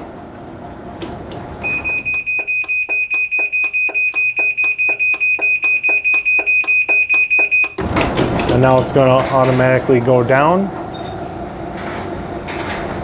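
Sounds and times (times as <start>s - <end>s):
garage door opener whining: 0.7s - 8.8s.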